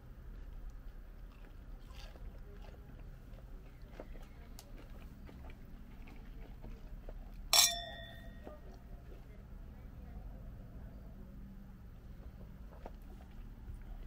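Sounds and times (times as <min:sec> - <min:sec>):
wine glasses clinking: 0:07.5 - 0:08.5.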